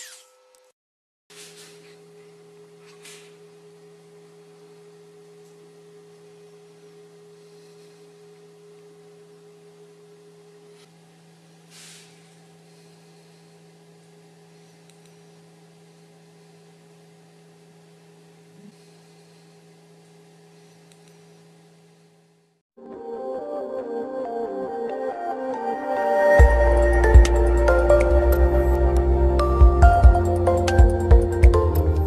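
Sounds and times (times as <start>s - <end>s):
low electrical hum: 1.4s - 22.6s
higher steady tone: 25.5s - 32.0s.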